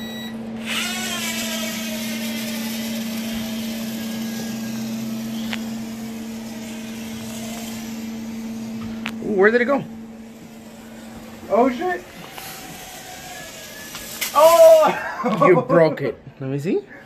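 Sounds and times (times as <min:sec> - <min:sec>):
toy drone buzzing: 0:00.6 - 0:15.3.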